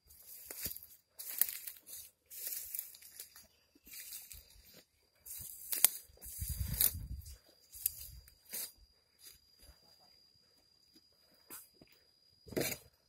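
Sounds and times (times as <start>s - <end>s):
faint steady high tone: 3.1s - 12.4s.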